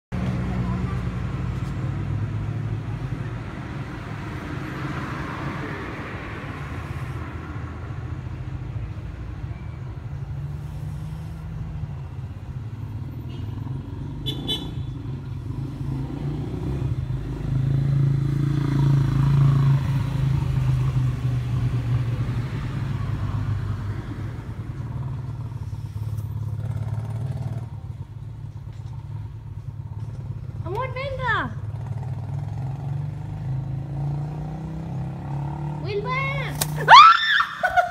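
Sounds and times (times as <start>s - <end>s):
passing vehicle engines hum: 0.1s - 37.9s.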